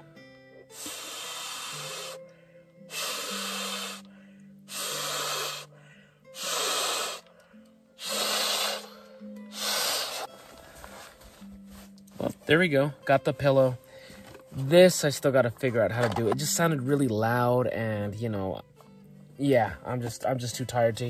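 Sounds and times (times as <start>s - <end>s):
soft background music: 0.0s - 21.0s
hissing exhalations into valve: 0.6s - 7.4s, 8.0s - 11.2s.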